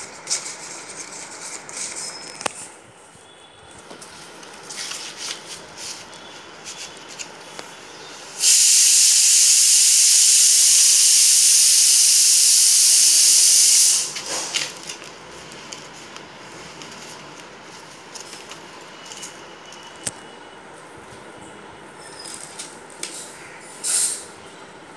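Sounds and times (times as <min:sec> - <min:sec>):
loud steady hiss: 0:07.2 - 0:15.3, 0:23.3 - 0:24.7.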